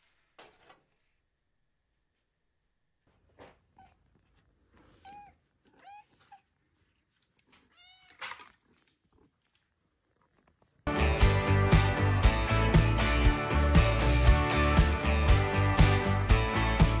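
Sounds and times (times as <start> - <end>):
cat meowing: 3.7 - 4.2, 4.8 - 6.6, 7.5 - 8.5
cat chirps: 4.8 - 6.6, 7.6 - 8.3.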